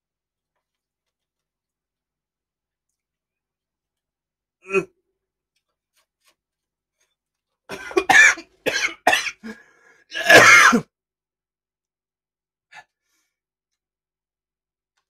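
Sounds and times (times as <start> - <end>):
man coughing: 7.7 - 10.8.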